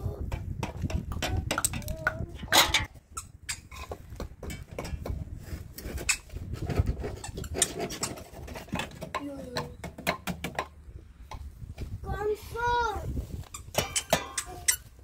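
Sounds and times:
metal utensils clinking on pot: 2.4s - 2.9s, 13.8s - 14.7s.

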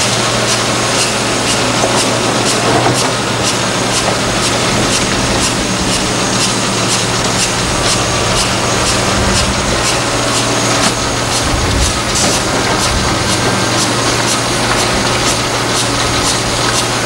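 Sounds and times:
excavator diesel drone: 0.0s - 17.0s.

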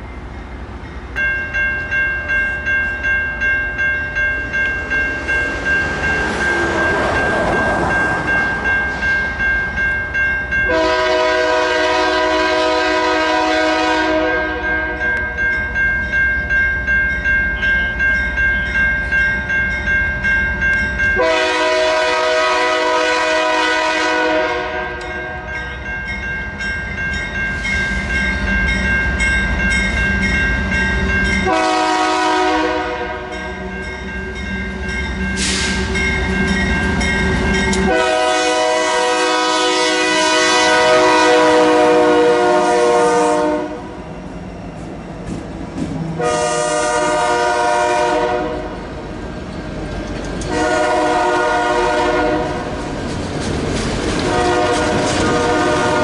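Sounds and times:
crossing signal bell ringing: 0.0s - 45.2s
locomotive air horn blasts: 10.7s - 15.1s, 21.2s - 25.5s, 31.4s - 33.4s, 37.8s - 44.0s, 46.2s - 48.8s, 50.5s - 52.6s, 54.2s - 56.0s.

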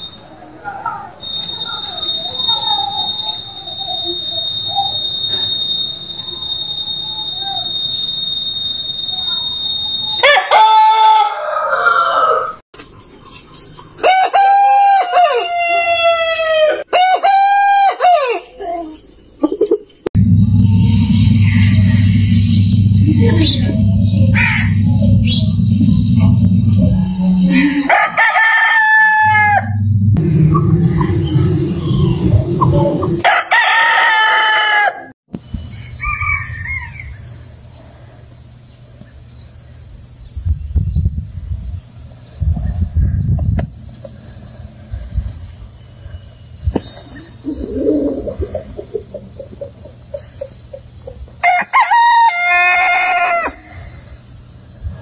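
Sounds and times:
rooster crowing: 0.8s - 12.6s, 14.0s - 18.6s, 27.0s - 29.8s, 33.2s - 35.1s, 35.7s - 37.3s, 51.4s - 53.8s
low rumble: 20.2s - 28.2s, 29.2s - 33.2s.

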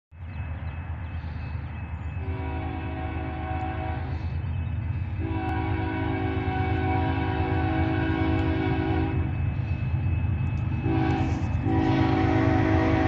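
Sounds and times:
low train rumble: 0.1s - 13.0s
locomotive air horn chord: 2.2s - 4.4s, 5.2s - 9.4s, 10.7s - 13.0s.

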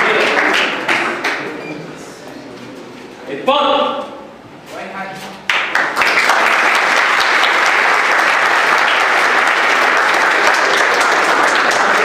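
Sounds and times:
audience applauding: 0.0s - 1.6s, 5.5s - 12.0s.

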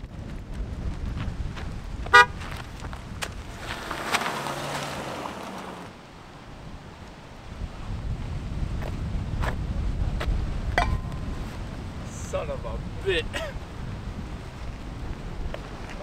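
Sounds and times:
car horn toot: 2.1s - 2.4s.

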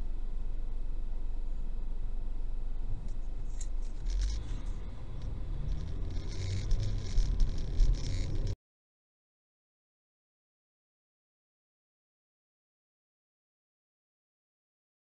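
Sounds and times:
engine and road rumble: 0.0s - 8.6s
clicks and rustling: 3.5s - 8.6s.

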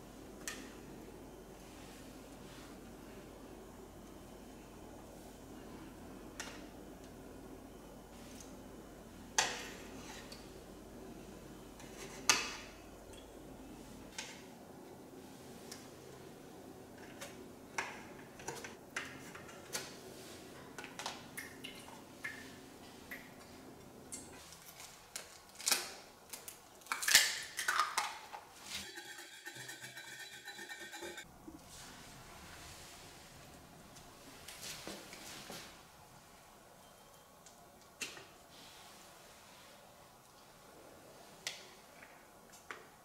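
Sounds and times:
fork beating egg on plate: 28.8s - 31.3s.

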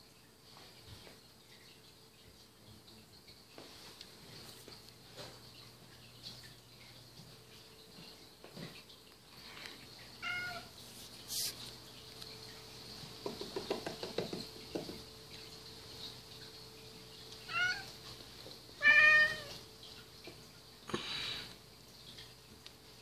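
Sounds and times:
cat meowing: 10.2s - 10.7s, 17.5s - 17.9s, 18.8s - 19.6s
soft knocks: 13.2s - 15.0s.

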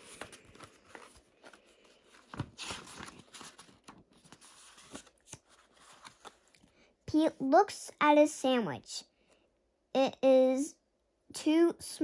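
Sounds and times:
paper pages rustling: 0.0s - 6.8s.

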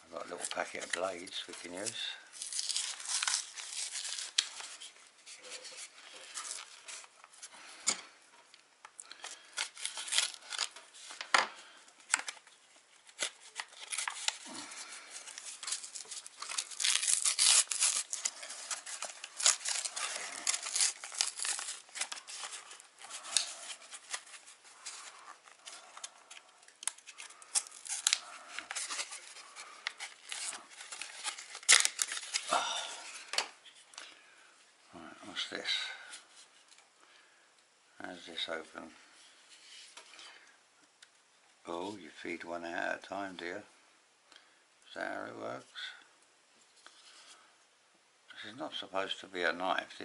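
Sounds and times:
cardboard packaging crinkling: 0.2s - 7.1s, 9.1s - 33.8s.

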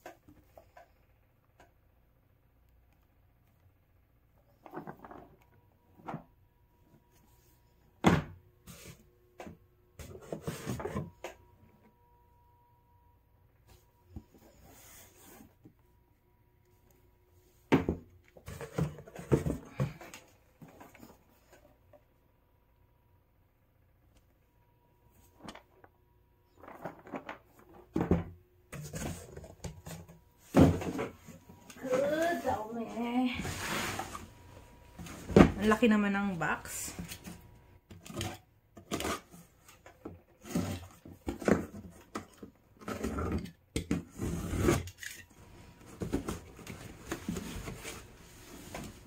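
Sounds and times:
cardboard scraping: 28.8s - 35.6s, 42.8s - 49.0s
cardboard rustling: 28.8s - 35.8s, 44.1s - 49.0s.

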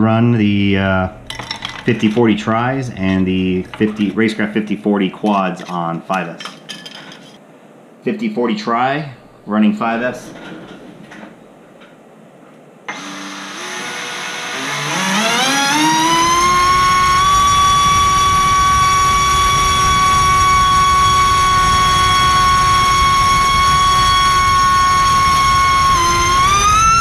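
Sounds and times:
electric motor propeller whine: 12.9s - 27.0s.

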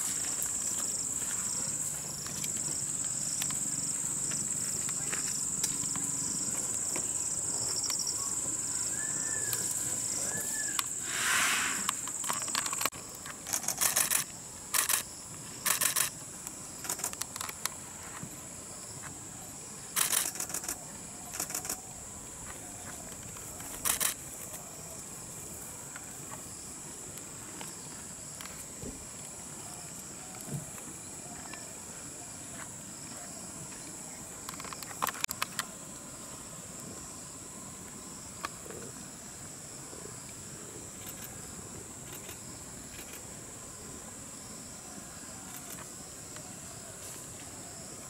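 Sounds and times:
high-pitched insect drone: 0.0s - 17.5s.

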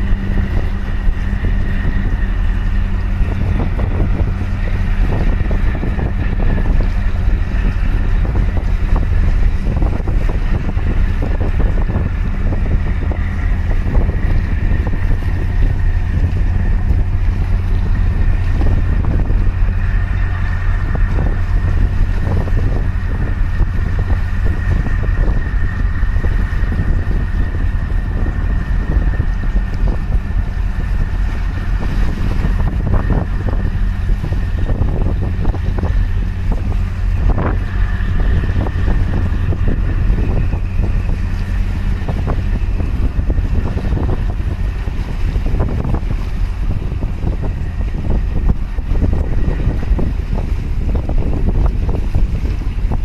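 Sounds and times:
diesel engine drone: 0.0s - 53.0s
high whine: 0.0s - 53.0s
wind buffeting microphone: 0.0s - 53.0s.

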